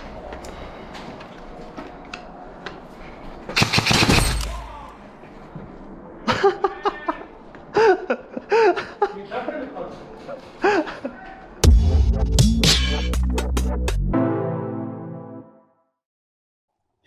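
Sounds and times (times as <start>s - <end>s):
airsoft rifle burst: 3.6s - 4.6s
people shouting: 4.4s - 5.0s.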